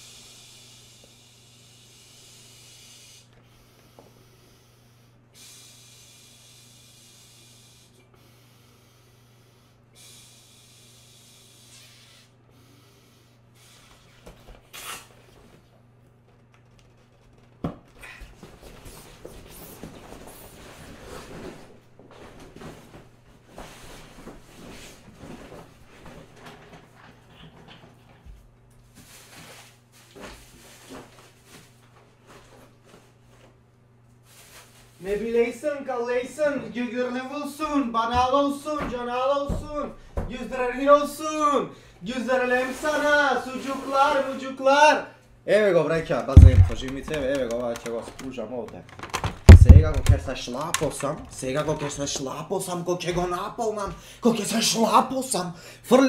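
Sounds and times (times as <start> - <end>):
hissing exhalations into valve: 0.0 - 15.1
steady low hum: 46.0 - 47.3, 49.4 - 51.1.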